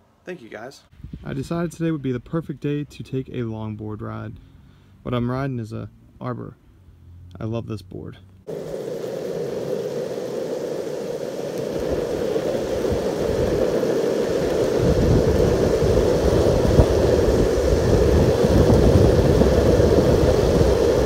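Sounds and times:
longboard wheels rolling on asphalt: 8.5 - 21.0.

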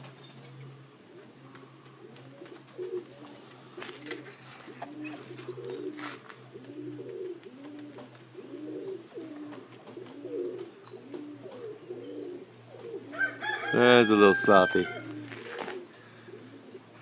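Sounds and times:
pigeons cooing: 0.0 - 17.0.

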